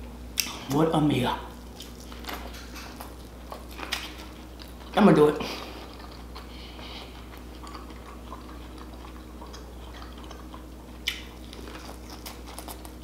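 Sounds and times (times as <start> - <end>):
low steady hum: 0.0 - 13.0
mouth and chewing clicks: 5.8 - 13.0.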